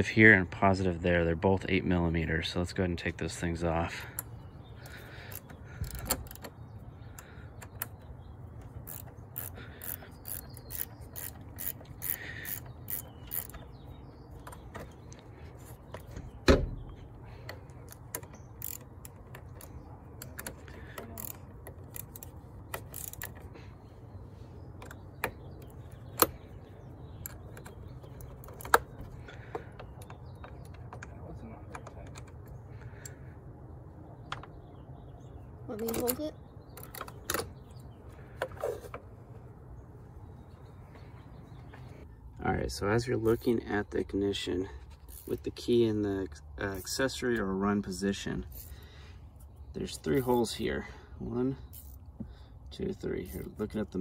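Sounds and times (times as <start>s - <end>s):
ratcheting wrench clicking: 8.8s - 13.7s, 17.9s - 23.5s, 51.7s - 52.0s.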